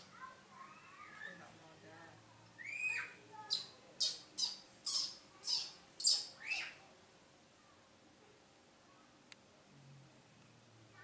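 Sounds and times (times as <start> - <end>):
baby monkey crying: 2.6 - 6.8.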